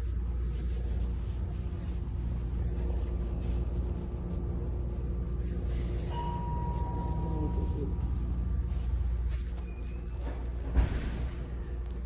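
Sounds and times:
faint steady tones: 0.0 - 10.0
low background hum: 0.0 - 12.0
higher steady tone: 5.8 - 8.8.

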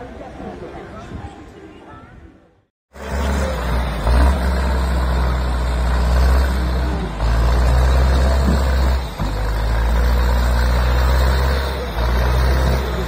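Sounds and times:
diesel engine running loud: 2.9 - 13.0.

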